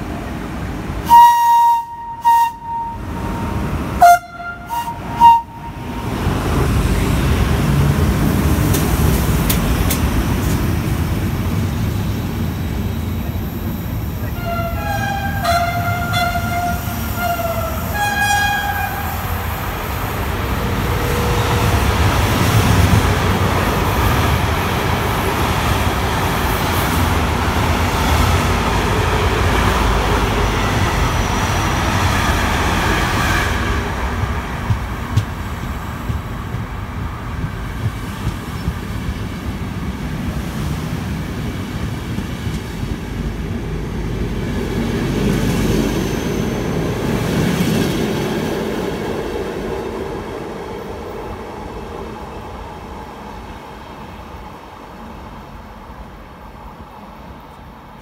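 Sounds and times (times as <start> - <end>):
train wheels rumbling on rails: 0.0 - 58.0
locomotive horn: 1.1 - 6.0, 14.3 - 19.3.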